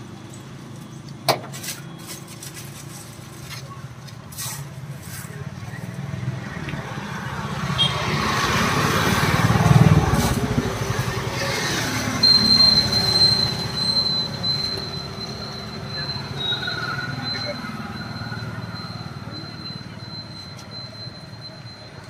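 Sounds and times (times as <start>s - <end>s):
heavy vehicle passing: 5.9s - 20.1s
high-pitched squeal: 7.7s - 19.1s.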